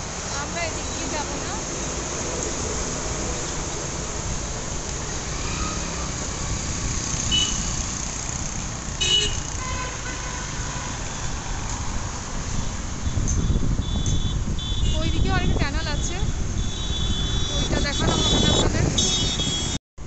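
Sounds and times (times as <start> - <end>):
highway traffic road noise: 0.0 - 19.8
horn toot: 9.0 - 11.2, 12.6 - 15.2, 15.9 - 19.8.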